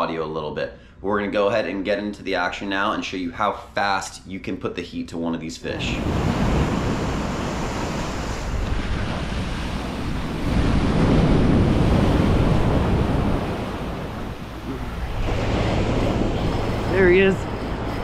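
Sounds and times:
ocean surf breaking: 5.8s - 18.0s
wind buffeting microphone: 5.9s - 18.0s.

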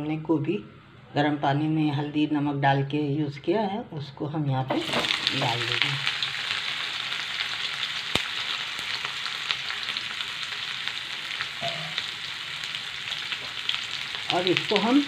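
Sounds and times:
vegetables sizzling in hot oil: 4.7s - 15.0s.

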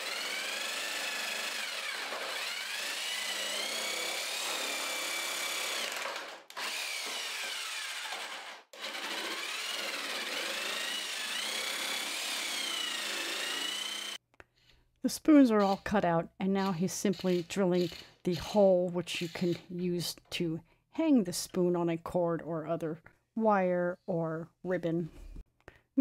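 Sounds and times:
jigsaw cutting wood: 0.0s - 14.2s, 16.6s - 18.6s.

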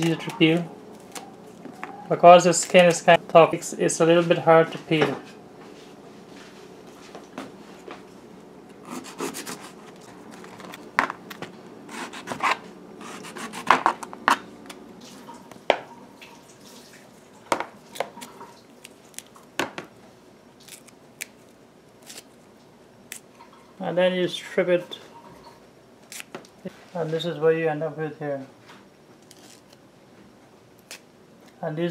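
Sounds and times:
knife scraping and cutting skin: 8.8s - 10.8s, 11.9s - 14.4s, 20.6s - 21.4s, 22.0s - 22.4s, 26.1s - 26.4s, 29.2s - 29.8s.

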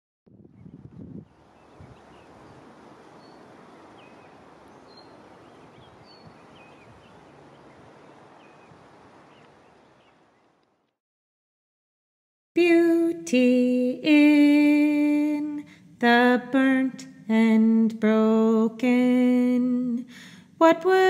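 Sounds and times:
small birds chirping: 0.5s - 10.9s
faint steady hiss: 1.0s - 10.8s, 12.6s - 21.0s.

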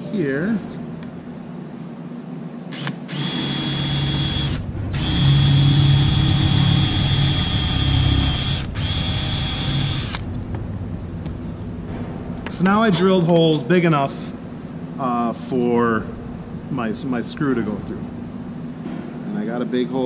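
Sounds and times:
cordless drill boring through metal: 2.8s - 10.2s.

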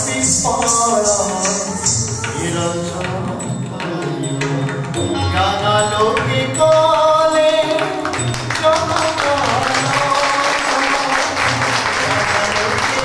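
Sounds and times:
sharp drum strokes: 0.0s - 6.7s.

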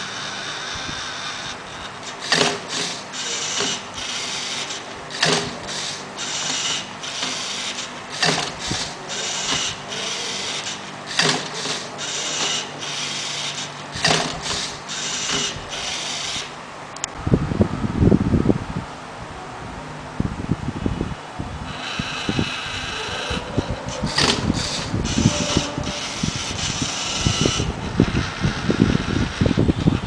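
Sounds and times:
robot motors and gears whirring: 0.0s - 17.1s, 21.7s - 30.0s
sharp plastic clack: 11.1s - 12.6s.

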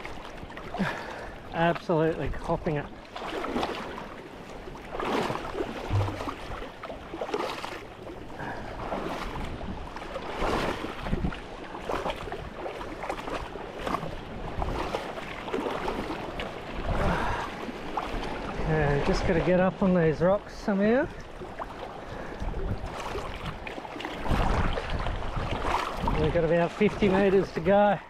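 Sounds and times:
sea water splashing and sloshing: 0.0s - 28.0s
wind noise on microphone: 5.9s - 6.6s, 9.2s - 11.5s, 22.2s - 26.4s.

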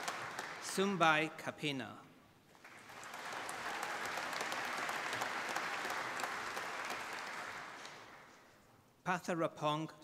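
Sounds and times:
audience applauding: 0.0s - 0.8s, 2.6s - 8.4s.

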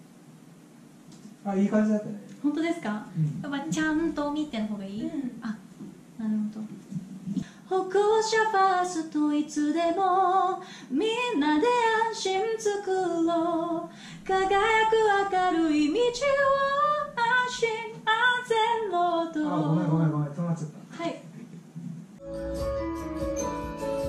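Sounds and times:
woman singing unaccompanied: 3.5s - 5.3s, 7.6s - 19.9s.

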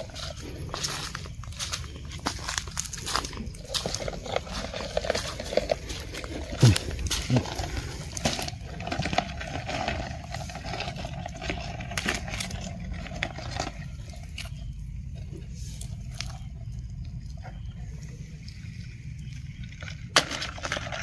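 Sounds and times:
dry leaves crackling underfoot: 0.0s - 16.8s.

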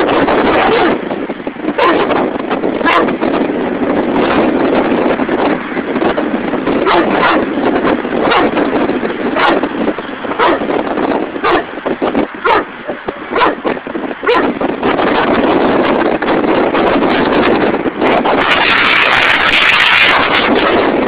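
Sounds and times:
dog barking: 0.0s - 1.0s, 1.7s - 3.2s, 6.8s - 7.6s, 8.2s - 8.6s, 9.3s - 10.8s, 11.4s - 11.8s, 12.4s - 14.6s
wind noise on microphone: 0.0s - 21.0s.

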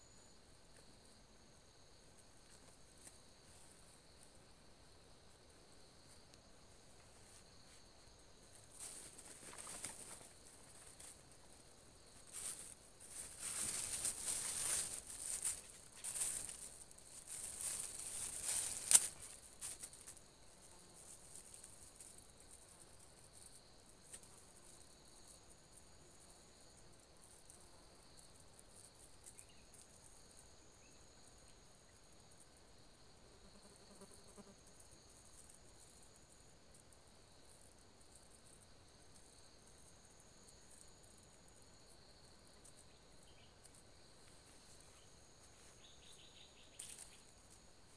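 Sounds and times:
faint insect drone: 0.0s - 47.9s
bag rustling and crinkling: 12.3s - 20.0s.

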